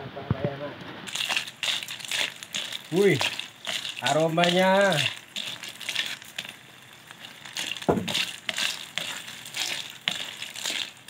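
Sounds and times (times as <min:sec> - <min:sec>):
snail shells clattering in a wok: 0:01.1 - 0:11.0.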